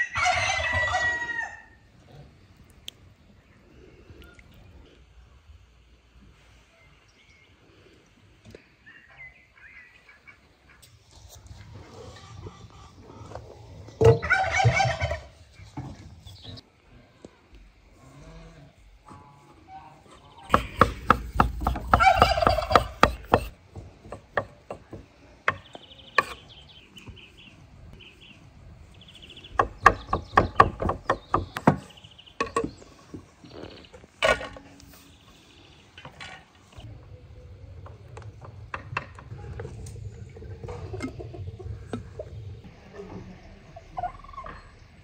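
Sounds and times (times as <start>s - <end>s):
turkey gobbling: 14.0s - 15.4s, 21.9s - 23.5s, 43.8s - 44.7s
knife chopping on wooden board: 20.5s - 25.0s.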